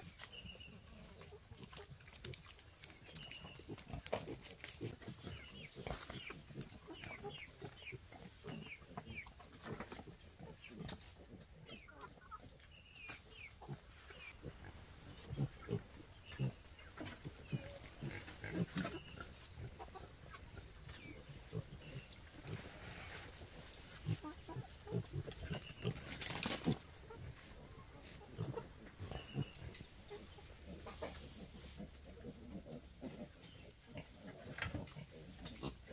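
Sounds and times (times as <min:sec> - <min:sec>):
piglets grunting: 0:14.4 - 0:22.7.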